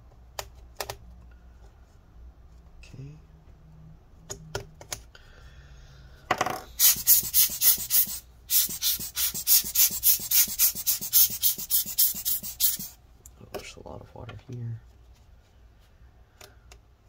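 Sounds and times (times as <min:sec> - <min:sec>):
rubber air-blower bulb puffing: 0:06.7 - 0:13.0.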